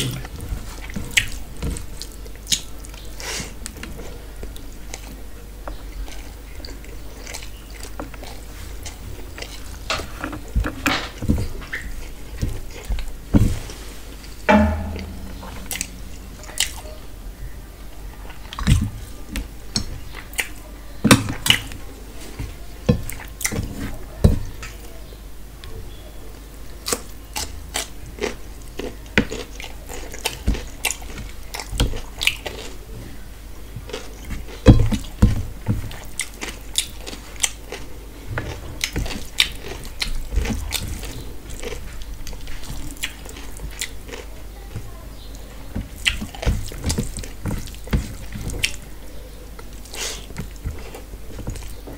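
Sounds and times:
louder knocks: 0:14.5 - 0:16.6
chewing smacks: 0:35.9 - 0:44.3
fingers mixing food on steel plate: 0:44.7 - 0:51.9.

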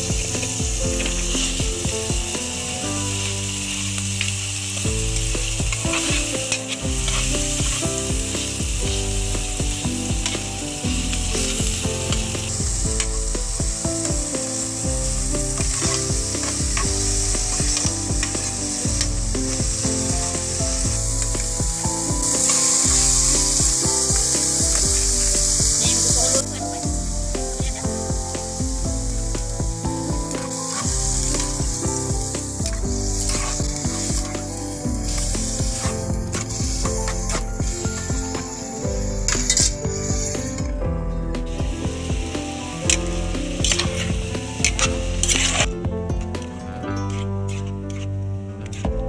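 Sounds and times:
food sizzling in hot oil: 0:00.0 - 0:40.7, 0:41.4 - 0:45.7
background music: 0:00.0 - 0:49.0
metal spatula scraping pot: 0:43.6 - 0:45.7.

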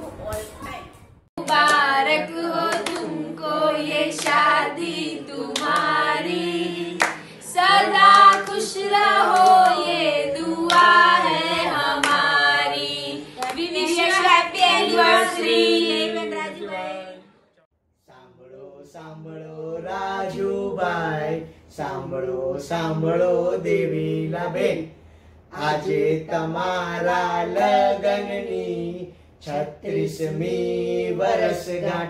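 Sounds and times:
family group singing: 0:01.4 - 0:32.0
slow hand claps: 0:09.3 - 0:09.8.

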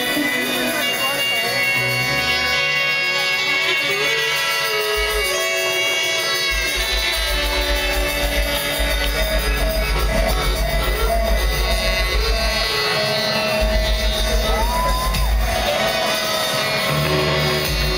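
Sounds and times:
keyboard notes: 0:00.0 - 0:17.9
saxophone notes: 0:00.0 - 0:17.9
pulsing bass beat: 0:06.5 - 0:17.9.

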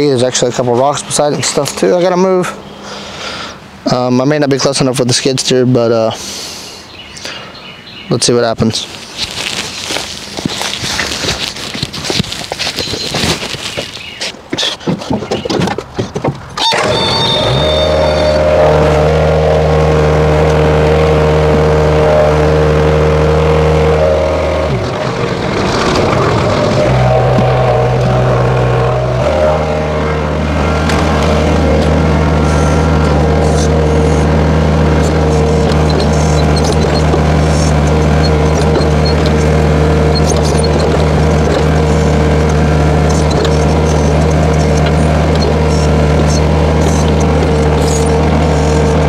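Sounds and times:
diesel engine running: 0:00.0 - 0:04.3, 0:16.6 - 0:49.0
hydraulic whine: 0:16.6 - 0:49.0.

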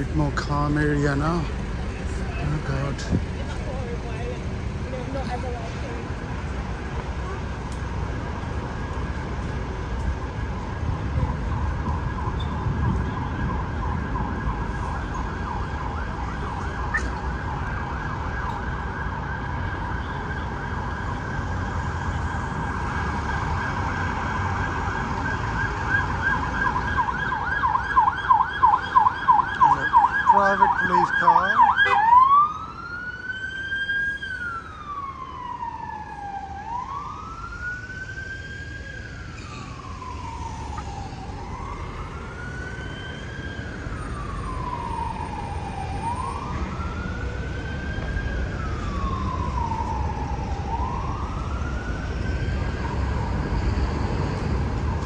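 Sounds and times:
emergency vehicle siren: 0:00.0 - 0:55.0
low traffic hum: 0:00.0 - 0:55.0.

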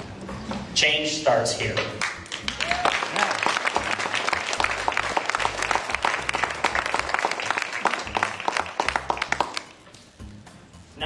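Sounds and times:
audience applauding: 0:02.0 - 0:09.7.

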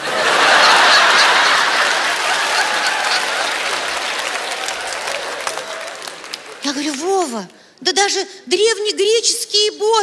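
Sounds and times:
audience laughing: 0:00.0 - 0:05.8
audience applauding: 0:00.0 - 0:07.3.

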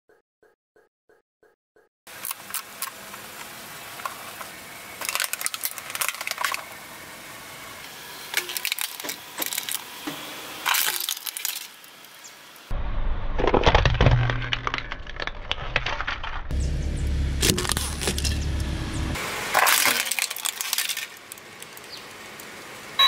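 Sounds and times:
plastic toy cracking under tyre: 0:05.0 - 0:06.7, 0:08.3 - 0:09.9, 0:19.6 - 0:22.1.

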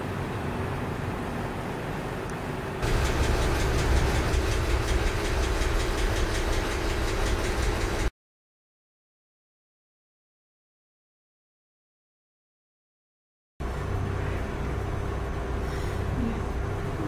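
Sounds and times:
sewing machine running: 0:02.8 - 0:08.1.

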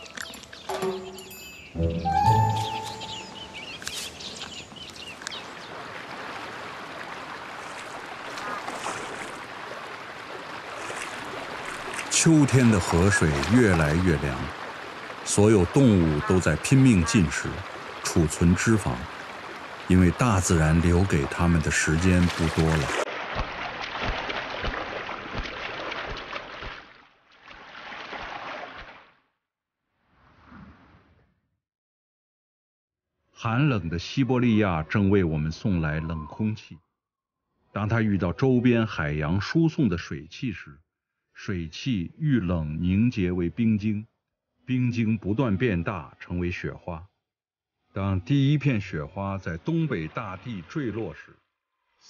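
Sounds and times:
river water flowing: 0:00.0 - 0:29.0
short high chirps: 0:00.9 - 0:03.7
light splashes of diving bird: 0:03.7 - 0:12.2, 0:21.9 - 0:29.2.

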